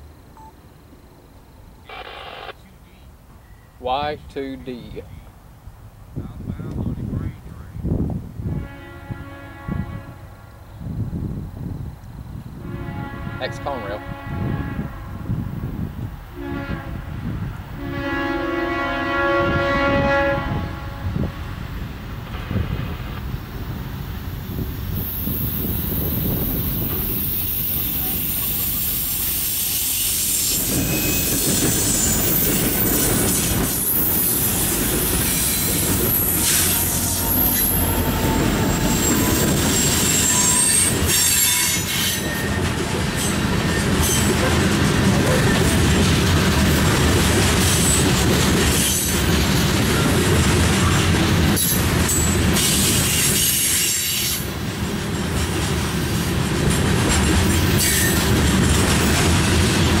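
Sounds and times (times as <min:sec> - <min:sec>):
train wheels rumbling on rail: 0:10.8 - 1:00.0
high wheel squeal: 0:24.5 - 0:44.5, 0:45.1 - 0:45.8, 0:51.6 - 0:54.5, 0:57.8 - 0:58.3
wheels clacking over rail joints: 0:30.5 - 1:00.0.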